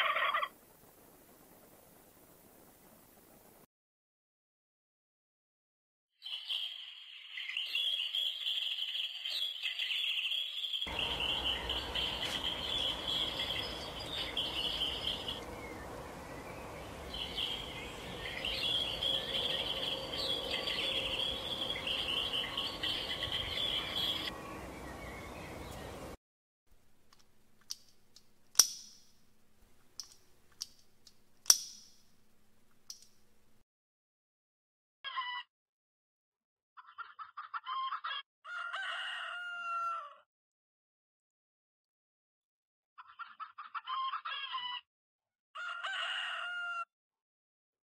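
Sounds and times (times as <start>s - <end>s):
songbirds chirping: 6.2s - 26.2s.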